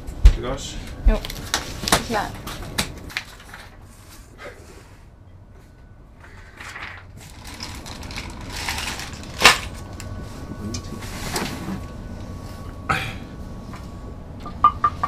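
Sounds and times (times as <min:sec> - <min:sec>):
plastic wrapping crinkling: 0:07.2 - 0:10.1.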